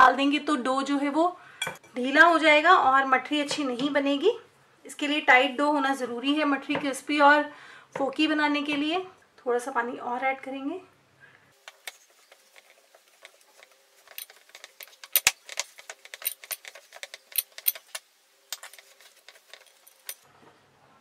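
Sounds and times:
bangles jangling and clinking: 13.5s - 20.2s.

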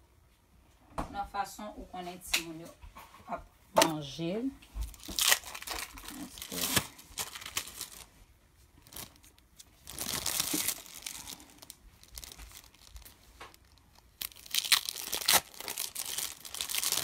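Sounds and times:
paper sheets crinkling: 4.9s - 8.2s, 8.8s - 17.0s.

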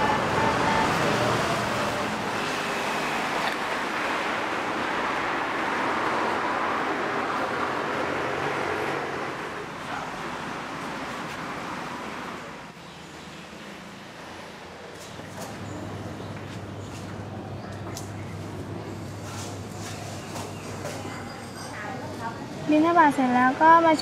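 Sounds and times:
passing cars and motorcycles: 0.0s - 10.4s.

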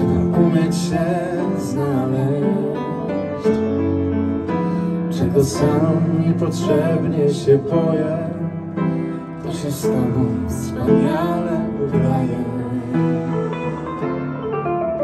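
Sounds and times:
people singing: 0.0s - 3.6s, 5.1s - 8.5s, 9.4s - 14.0s
electric keyboard: 0.0s - 15.0s
piano: 0.0s - 15.0s.

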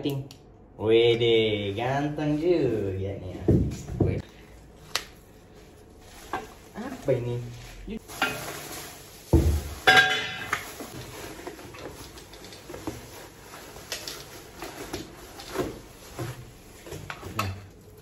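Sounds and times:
plastic packaging rustling: 4.2s - 18.0s.

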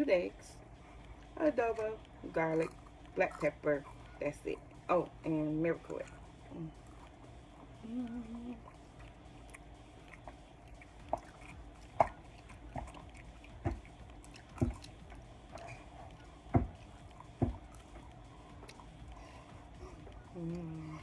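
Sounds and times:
wet chewing and mouth noises: 0.6s - 21.0s.

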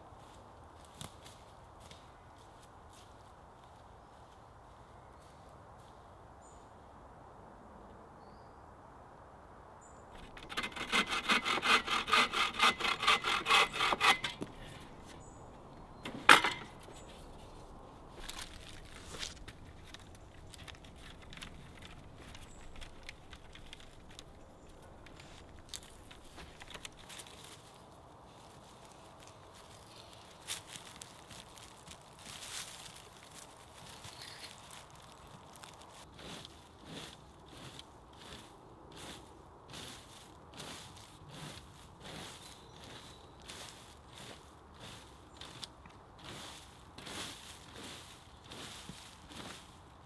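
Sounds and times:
wood cracking: 10.1s - 15.2s, 15.8s - 27.4s
hand saw cutting wood: 10.2s - 15.2s, 16.1s - 16.8s
wood knocking and scraping: 10.2s - 27.3s.

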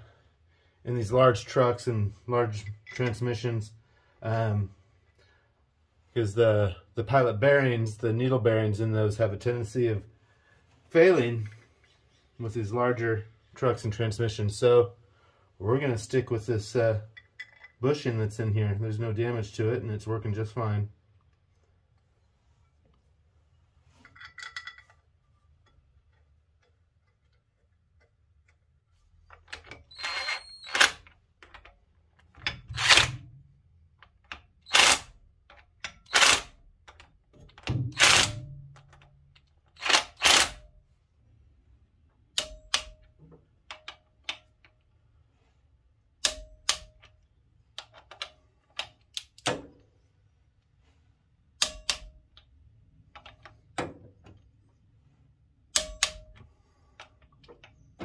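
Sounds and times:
impact driver bursts: 34.7s - 35.1s, 36.0s - 36.5s, 37.9s - 38.4s
wrench clicking on bolts: 42.4s - 44.8s, 46.2s - 47.2s, 51.6s - 52.5s, 55.7s - 57.7s.

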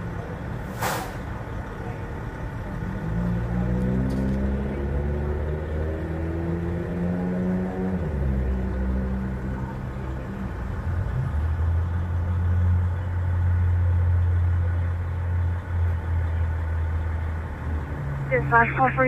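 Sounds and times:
vehicle engine idling: 0.0s - 4.3s, 8.5s - 19.0s.

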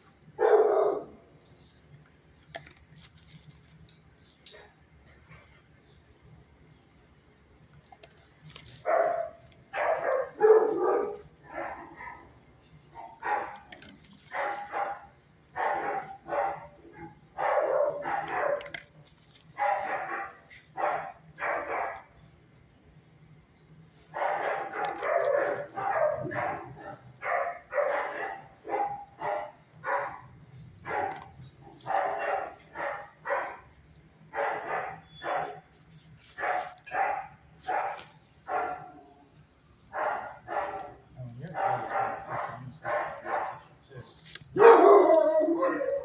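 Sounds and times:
dogs barking: 0.4s - 1.3s, 8.8s - 18.9s, 19.5s - 22.1s, 24.0s - 35.7s, 36.4s - 39.2s, 39.9s - 46.0s.

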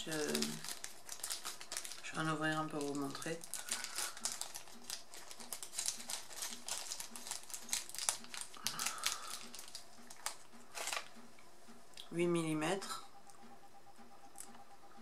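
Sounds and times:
plastic bag crinkling and clicking: 0.0s - 11.2s.

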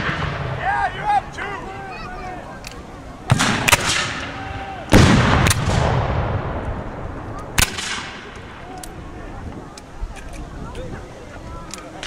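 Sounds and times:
musket boom with echo: 0.0s - 0.6s, 3.3s - 4.3s, 4.9s - 8.3s
musket shot cracks: 3.3s - 4.3s, 4.9s - 6.6s, 7.6s - 8.3s.

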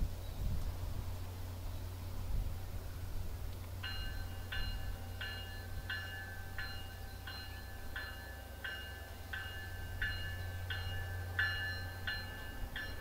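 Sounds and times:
low train rumble: 0.0s - 13.0s
locomotive bell ringing: 3.8s - 13.0s.

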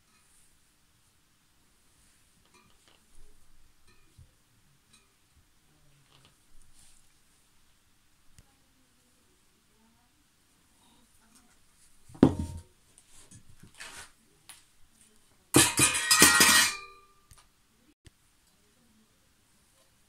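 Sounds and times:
metal tubes knocking and clinking: 15.6s - 17.1s.

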